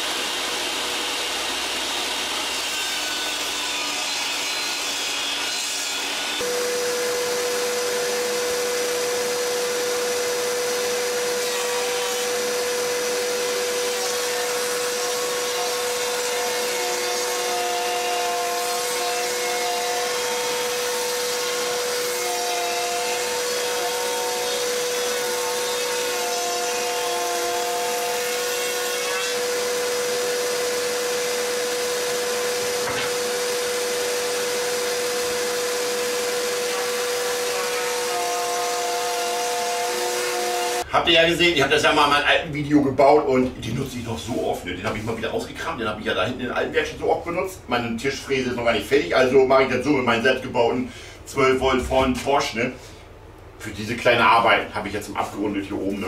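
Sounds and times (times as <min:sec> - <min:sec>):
shop vacuum running: 0:00.0 - 0:40.9
wood router whining: 0:00.0 - 0:40.9.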